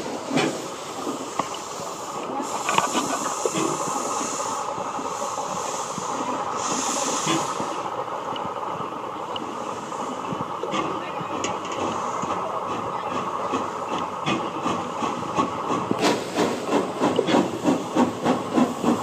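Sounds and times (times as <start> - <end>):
steam locomotive hissing steam: 0.0 - 8.2, 9.4 - 19.0.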